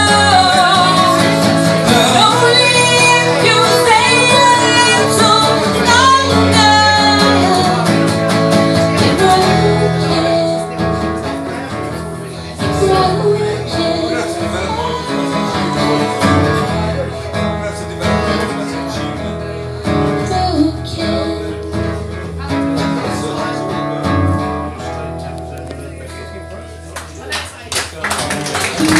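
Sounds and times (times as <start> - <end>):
woman singing: 0.0 - 11.4, 12.4 - 16.9, 19.8 - 22.0
acoustic guitar strumming: 0.0 - 27.3.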